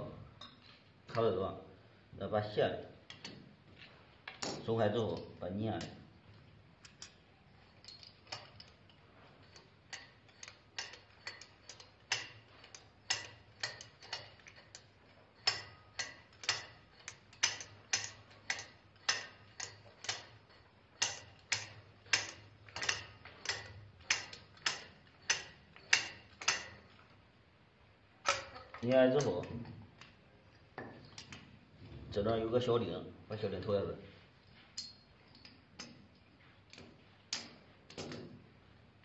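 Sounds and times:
sharp metal clicks: 0:06.8 - 0:27.1, 0:28.2 - 0:31.5, 0:34.8 - 0:38.3.

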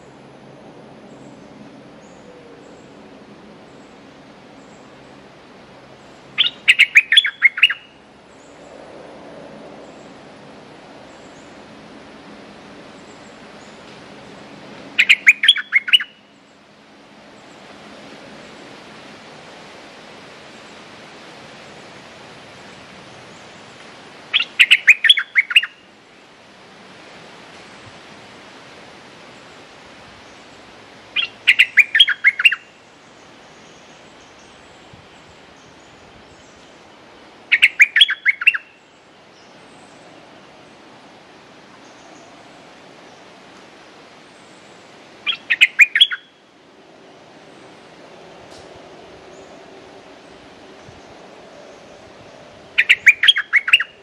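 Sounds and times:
background hiss: 0:00.0 - 0:54.0
bird singing bright notes: 0:06.0 - 0:08.6, 0:15.0 - 0:16.6, 0:24.3 - 0:25.9, 0:31.2 - 0:36.8, 0:37.5 - 0:40.0, 0:44.4 - 0:46.5, 0:52.8 - 0:54.0.

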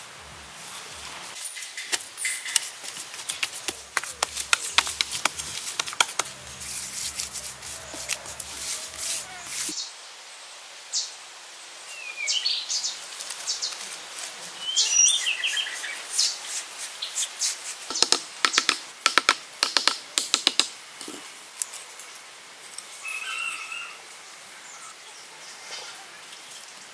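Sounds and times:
stone tapping bamboo pegs: 0:01.6 - 0:09.7, 0:17.9 - 0:21.1
birds chirping: 0:14.6 - 0:16.4.

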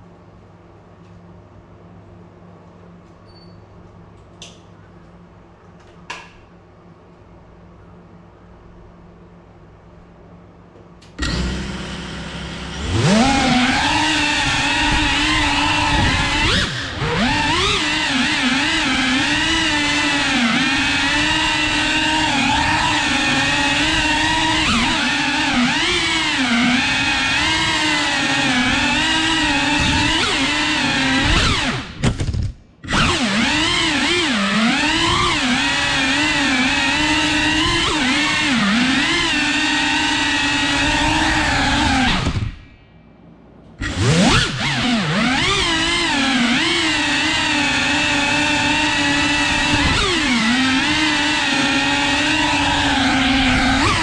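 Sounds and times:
drone motors whining: 0:11.0 - 0:42.8, 0:43.8 - 0:54.0.

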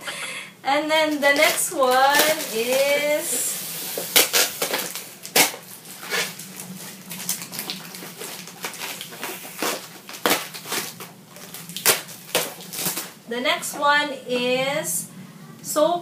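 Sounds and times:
packaging crinkling and rustling: 0:01.1 - 0:13.2.

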